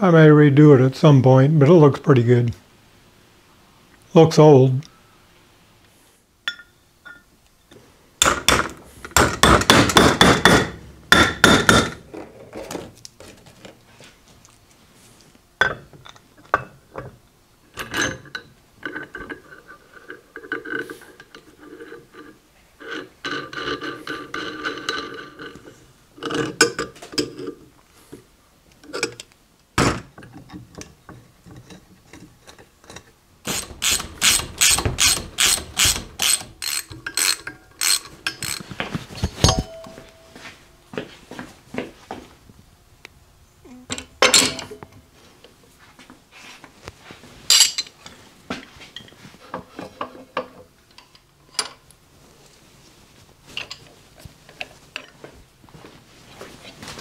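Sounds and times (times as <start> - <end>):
steel parts and tools clinking: 6.5 - 7.3, 32.5 - 40.4, 47.5 - 48.0
hammer tapping metal: 9.2 - 12.0.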